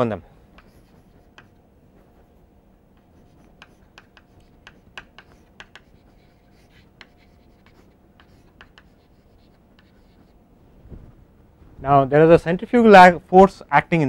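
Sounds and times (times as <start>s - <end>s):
faint steady hum: 0.0s - 14.0s
chalk tapping and scratching: 0.5s - 10.4s.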